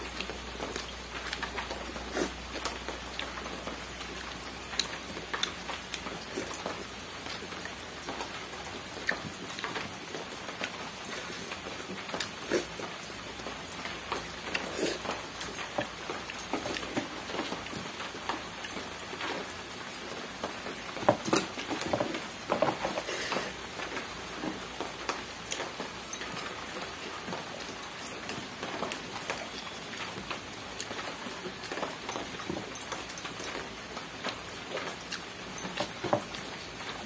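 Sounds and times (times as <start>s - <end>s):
rain hissing: 0.0s - 32.8s
wet chewing and lip smacks: 0.1s - 19.5s.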